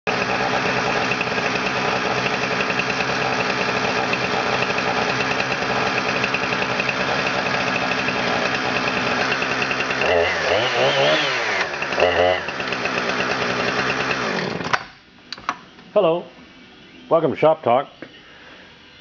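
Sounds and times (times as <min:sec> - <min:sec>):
engine running steadily: 0:00.1 - 0:14.8.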